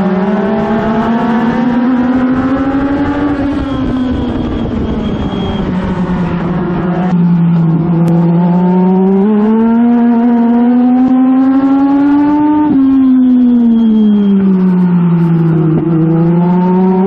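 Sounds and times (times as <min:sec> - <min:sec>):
race car engine at full throttle: 0:00.0 - 0:17.0.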